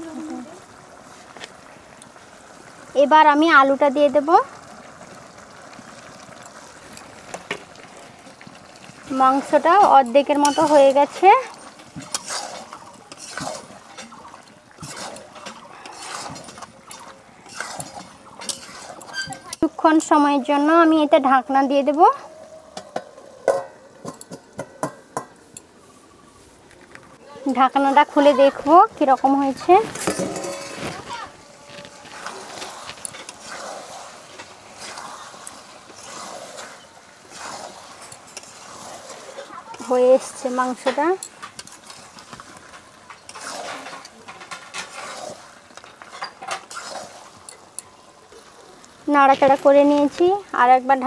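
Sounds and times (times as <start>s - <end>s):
spatula scraping metal pan: 9.4s - 20.2s, 27.8s - 47.6s.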